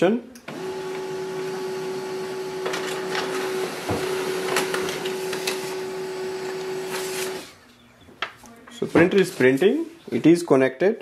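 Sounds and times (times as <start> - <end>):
laser printer whirring: 0.5 - 7.6.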